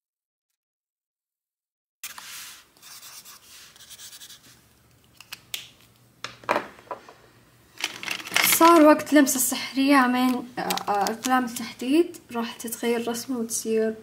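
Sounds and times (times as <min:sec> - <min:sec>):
marker scratching on paper: 0:02.0 - 0:04.6.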